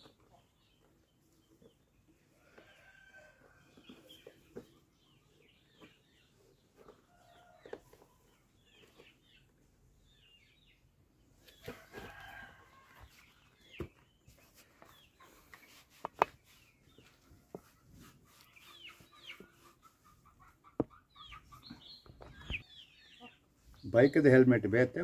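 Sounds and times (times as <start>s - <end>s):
chickens clucking: 14.8s - 25.0s.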